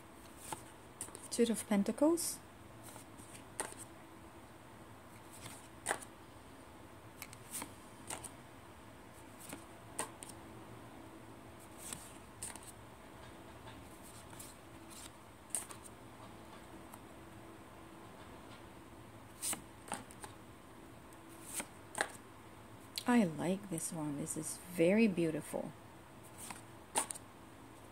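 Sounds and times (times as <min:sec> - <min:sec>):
cards sliding off a deck: 0:02.9 - 0:03.9, 0:05.2 - 0:06.1, 0:07.2 - 0:08.3, 0:09.4 - 0:10.4, 0:11.8 - 0:12.7, 0:19.4 - 0:20.4, 0:21.4 - 0:22.2, 0:26.3 - 0:27.2.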